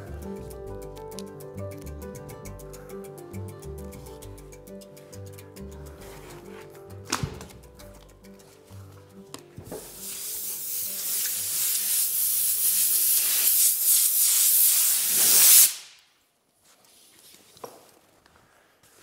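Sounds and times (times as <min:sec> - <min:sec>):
background music: 0:00.0 - 0:15.6
loud rushing hiss: 0:10.0 - 0:16.0.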